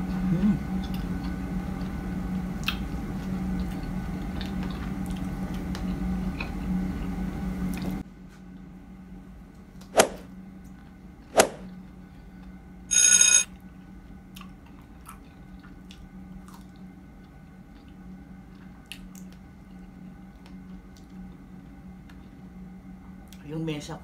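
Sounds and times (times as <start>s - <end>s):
low steady hum: 0.0s - 24.0s
chewing strawberries: 3.6s - 6.7s, 14.3s - 21.3s
short bell ring: 12.9s - 13.5s.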